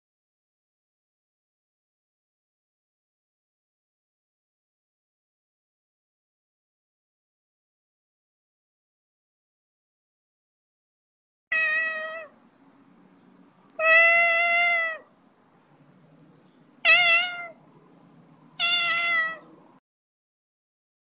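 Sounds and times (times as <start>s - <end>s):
cat meowing: 11.5s - 12.4s, 13.7s - 15.1s, 16.8s - 17.6s, 18.5s - 19.6s.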